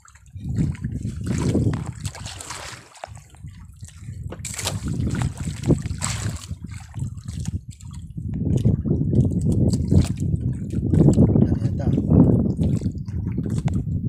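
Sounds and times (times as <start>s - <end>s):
water splashing against boat hull: 0.0s - 14.0s.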